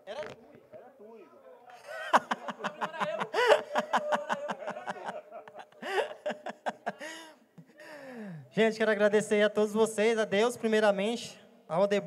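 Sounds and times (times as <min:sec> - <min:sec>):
people laughing: 0:01.7 - 0:07.8.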